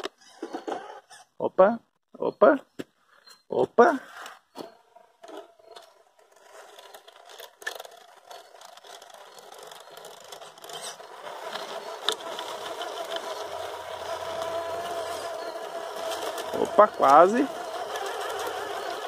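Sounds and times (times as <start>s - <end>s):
electric motor whining: 5.6s - 19.0s
scattered clicks: 6.8s - 13.6s.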